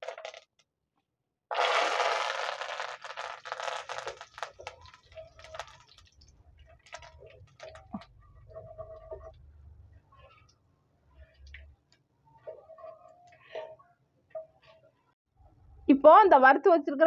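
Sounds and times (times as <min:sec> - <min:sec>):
crackles and pops of frying: 0:00.0 - 0:00.6, 0:01.5 - 0:09.4
leaves sizzling in hot oil: 0:01.6 - 0:06.2.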